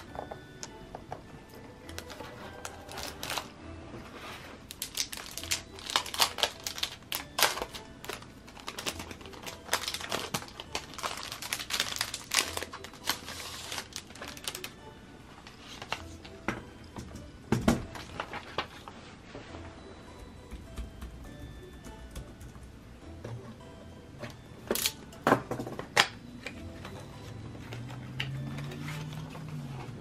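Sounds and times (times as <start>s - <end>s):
soft background music: 0.0s - 30.0s
plastic wrap crinkling: 1.9s - 3.6s, 4.6s - 14.8s
paper packaging rustling: 1.9s - 14.8s, 15.4s - 16.4s, 17.8s - 19.2s.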